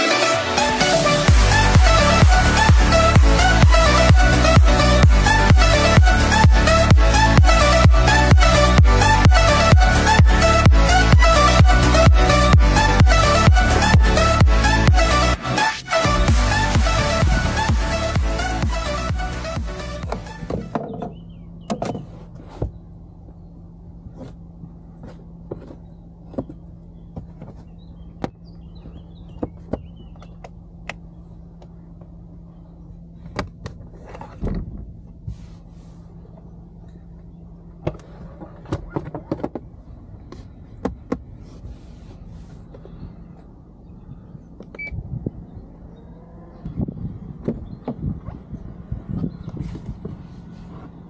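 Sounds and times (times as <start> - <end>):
steady low hum: 1.0 - 51.0
handling knocks clicks and rubs: 24.0 - 32.2.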